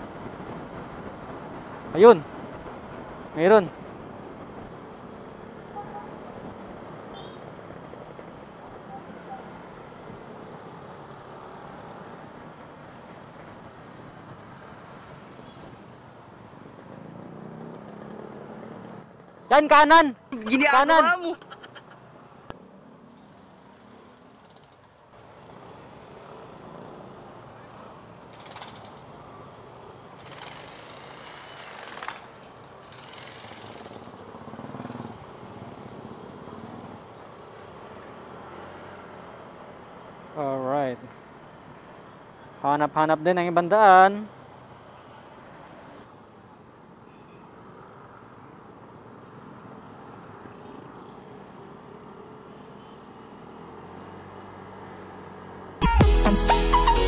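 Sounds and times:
motorcycle engine and road noise: 0.0 - 19.8, 20.4 - 42.0, 47.0 - 55.8.

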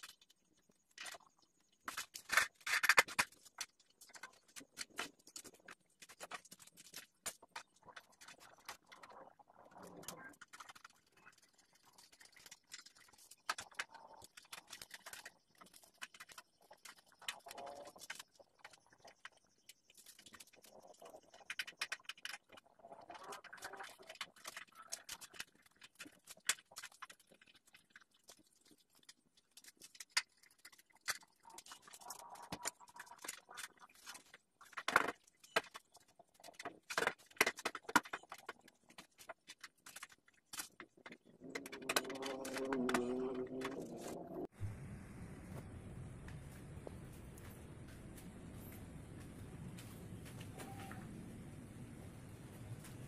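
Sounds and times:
plastic parts clicking and knocking: 0.0 - 44.5.

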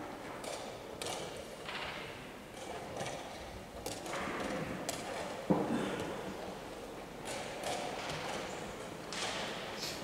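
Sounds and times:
hall room noise: 0.0 - 10.0.

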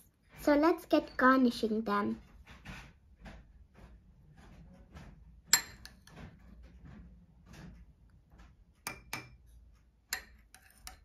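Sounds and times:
metal spoon clinking on glass: 5.5 - 6.0, 10.1 - 11.0.

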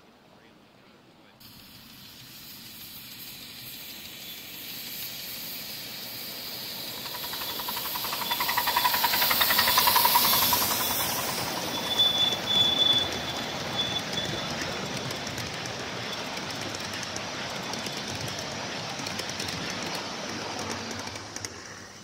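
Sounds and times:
steam locomotive passing: 1.4 - 22.0
thin high tone: 6.2 - 15.3.

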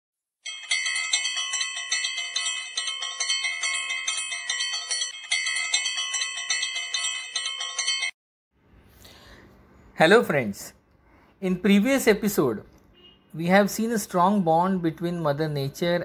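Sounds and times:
ringing bell chimes jingle: 0.4 - 8.2.

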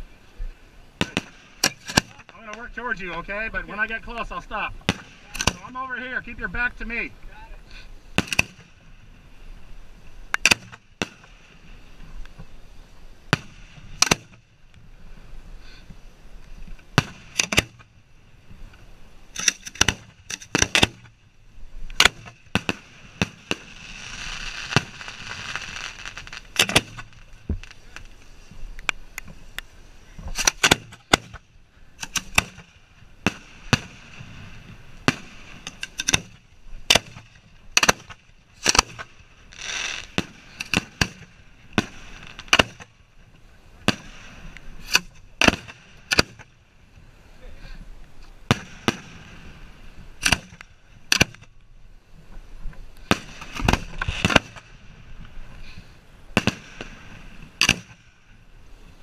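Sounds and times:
fireworks hissing: 0.0 - 19.4, 20.0 - 31.4, 32.0 - 47.4
fireworks bangs: 1.0 - 7.1, 8.1 - 9.1, 13.3 - 14.4, 21.9 - 28.6, 32.0 - 43.1, 48.5 - 51.4, 53.0 - 55.3, 56.3 - 58.4.

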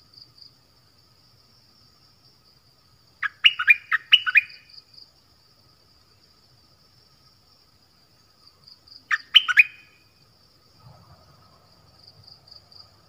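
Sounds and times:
faint high insect buzz: 0.0 - 13.0
bird whistled call: 3.2 - 4.7, 9.1 - 10.0.

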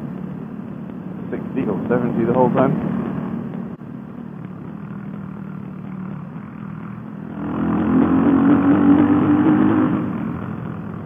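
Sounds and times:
motorcycle engine running: 0.0 - 11.0
wind and road noise: 0.0 - 11.0.

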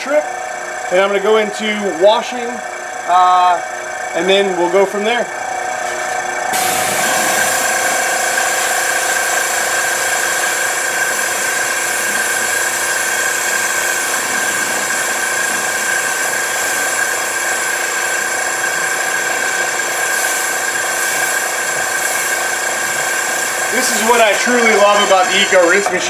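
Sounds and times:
pump whining: 0.0 - 26.0
spray wand hissing water: 6.6 - 25.8.

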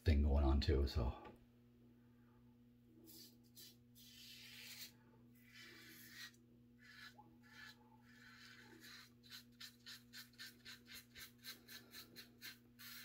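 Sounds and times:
razor scraping stubble: 3.1 - 13.0.

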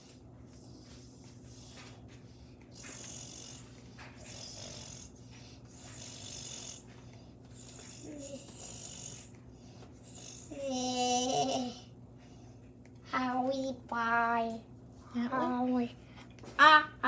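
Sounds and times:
noisy breathing: 0.0 - 12.8
faint steady hum: 0.0 - 17.0.

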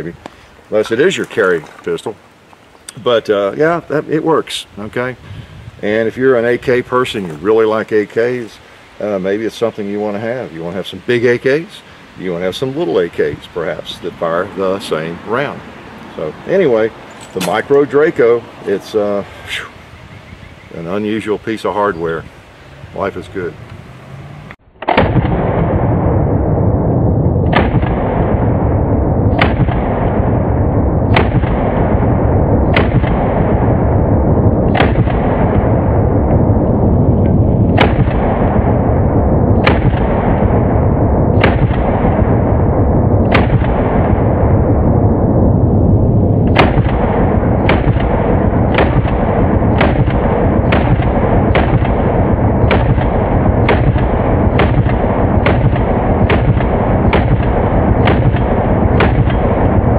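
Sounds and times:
low rumbling noise: 0.0 - 59.9
pistol shots: 17.2 - 17.8, 27.5 - 28.4, 29.3 - 30.3, 31.1 - 32.0, 32.6 - 33.6, 34.7 - 35.6, 37.7 - 38.6, 39.6 - 40.5, 41.4 - 42.2, 43.2 - 44.2, 46.5 - 59.8.

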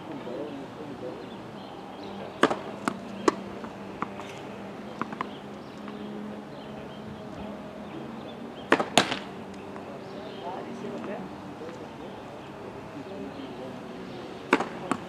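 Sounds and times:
tennis balls struck by racket: 2.3 - 6.0, 8.6 - 9.9, 14.4 - 15.0
tennis balls bouncing on court: 2.4 - 6.0, 8.6 - 9.9, 14.4 - 15.0.

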